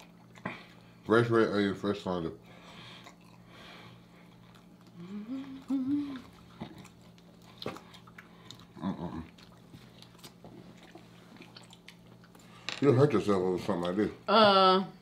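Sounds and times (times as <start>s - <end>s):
people chewing with wet smacking: 0.0s - 1.2s, 2.7s - 12.6s
person humming mmm: 4.9s - 6.4s.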